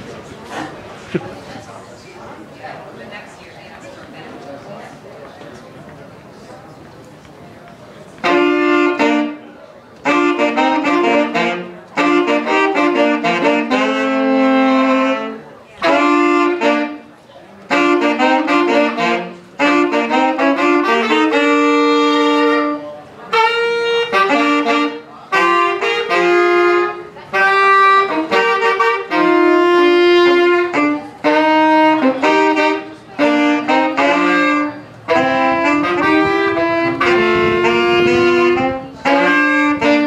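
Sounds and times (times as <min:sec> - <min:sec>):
saxophones playing jazz duet: 0:08.1 - 0:40.0.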